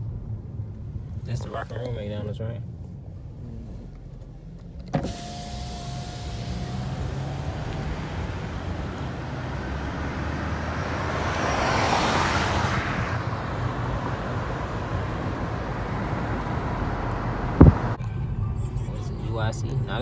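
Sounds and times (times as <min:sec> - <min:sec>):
car road and engine rumble: 0:00.0 - 0:20.0
passing traffic: 0:00.0 - 0:20.0
sharp thump: 0:17.6 - 0:18.0.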